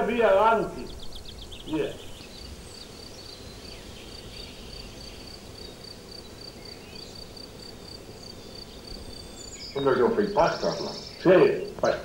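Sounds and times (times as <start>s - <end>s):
faint bird calls: 0.0s - 12.0s
low outdoor background: 0.0s - 12.0s
cricket chirping: 0.8s - 12.0s.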